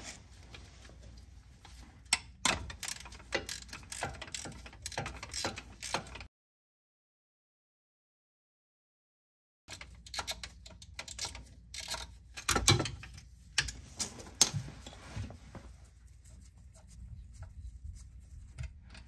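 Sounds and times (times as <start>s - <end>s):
ratchet clicking: 2.5s - 6.2s.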